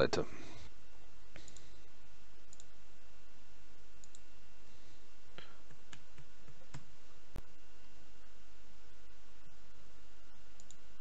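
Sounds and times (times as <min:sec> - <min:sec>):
steady low hum: 0:00.0 - 0:11.0
computer mouse clicking: 0:02.5 - 0:02.7, 0:04.0 - 0:04.2, 0:10.6 - 0:10.8.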